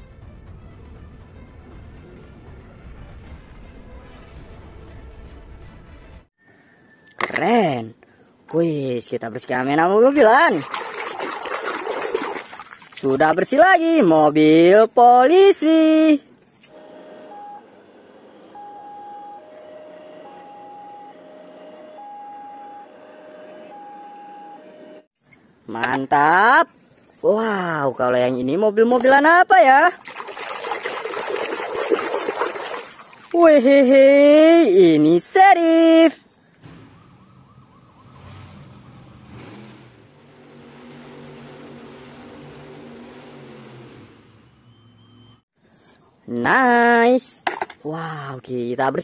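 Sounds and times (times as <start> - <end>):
two-tone police siren: 16.7 - 25.2, 36.6 - 45.4
faint truck engine droning: 16.8 - 25.1, 36.6 - 45.5.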